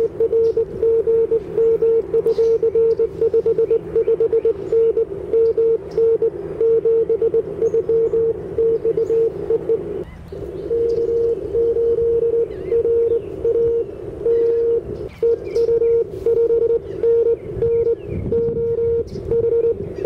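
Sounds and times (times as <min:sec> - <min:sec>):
faint bird chirps: 0:00.0 - 0:20.0
morse code tone: 0:00.0 - 0:20.0
receiver hiss: 0:00.0 - 0:20.0.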